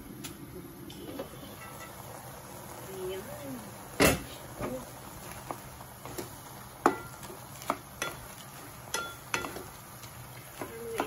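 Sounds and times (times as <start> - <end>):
sauce sizzling: 0.0 - 11.0
spatula tapping frying pan: 6.0 - 11.0.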